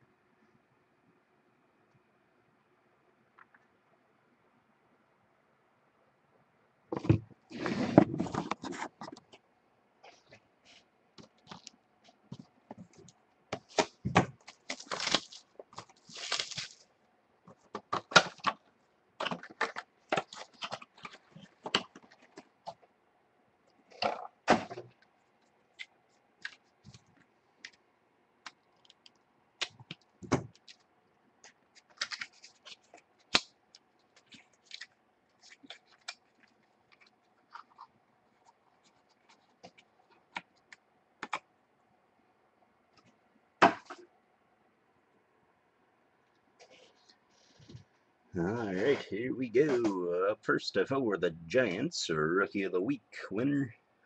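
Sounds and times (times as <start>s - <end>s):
faint steady hum: 0.0s - 54.0s
cardboard scraping: 7.0s - 9.2s
plastic wrapping crinkling: 11.2s - 16.9s, 19.2s - 22.8s, 28.5s - 40.8s.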